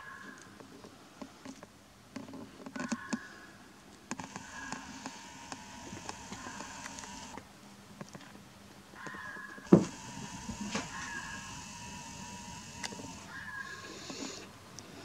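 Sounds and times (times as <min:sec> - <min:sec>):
sharp clicks: 0:04.1 - 0:07.4, 0:09.0 - 0:13.4
fox howling: 0:10.6 - 0:11.6, 0:12.9 - 0:14.4.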